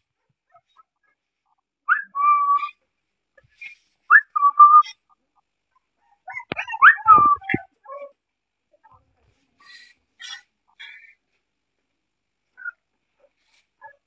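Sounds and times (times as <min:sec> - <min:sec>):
puppy whining: 0:06.0 - 0:08.2, 0:12.6 - 0:12.8.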